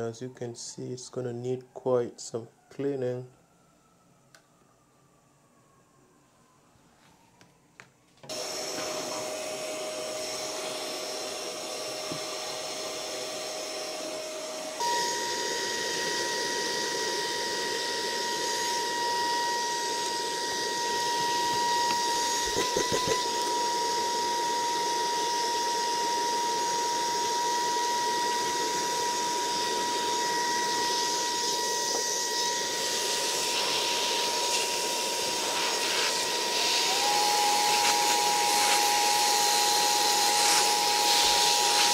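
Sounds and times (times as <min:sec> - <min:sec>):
handheld vacuum whining: 0:08.2 - 0:41.9.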